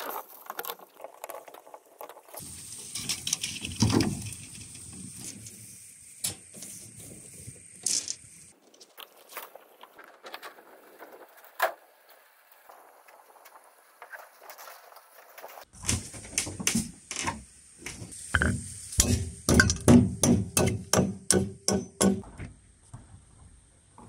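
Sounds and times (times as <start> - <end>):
loud knocks and thuds: 18.4 - 22.5.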